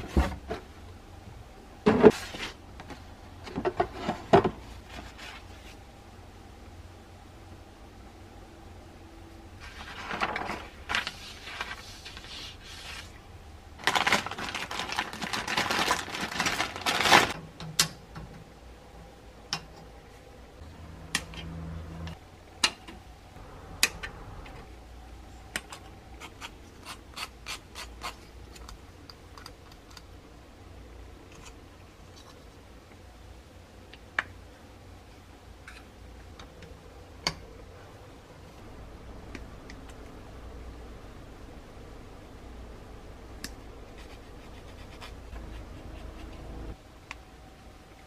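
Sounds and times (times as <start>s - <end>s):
paper sheets rustling: 9.6s - 13.2s, 13.8s - 17.4s.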